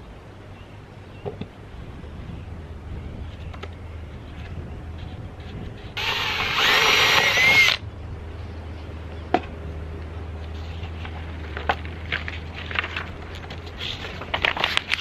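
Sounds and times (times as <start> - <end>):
cordless drill whine: 6.0 - 7.8.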